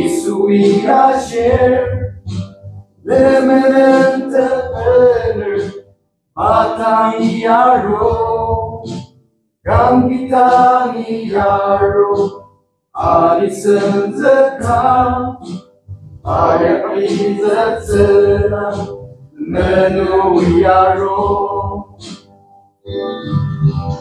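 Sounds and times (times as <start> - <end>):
men singing unaccompanied: 0.0 - 2.1, 3.1 - 5.7, 6.4 - 8.7, 9.7 - 12.4, 13.0 - 15.4, 16.3 - 21.8.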